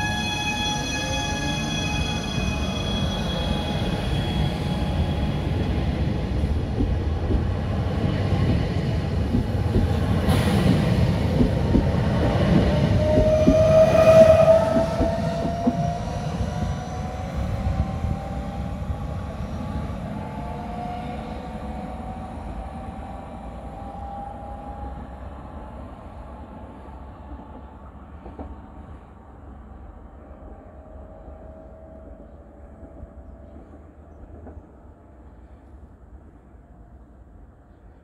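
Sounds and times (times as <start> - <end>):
train wheels rumbling and clicking: 5.3 - 18.4.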